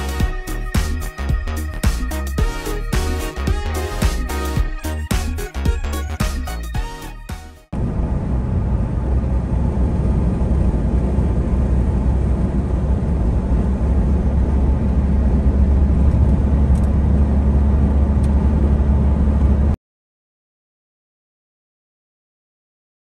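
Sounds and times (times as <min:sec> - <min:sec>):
vehicle cabin road rumble: 0:07.7 - 0:19.8.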